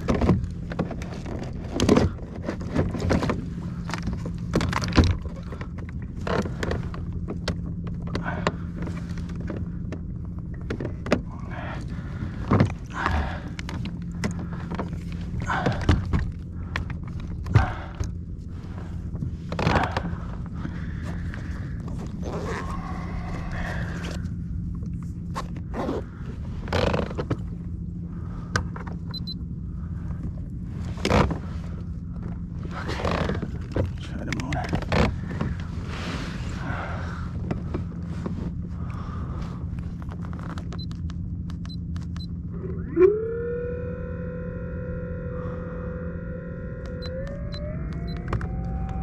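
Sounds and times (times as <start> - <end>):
electric motor whirring: 42.5 - 49.0
click: 46.8 - 49.0.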